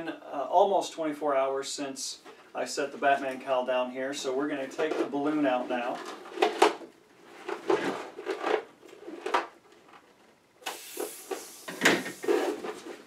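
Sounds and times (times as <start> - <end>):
rubbery rustling of latex mask: 4.6 - 13.0
air hissing out of balloon: 10.6 - 12.6.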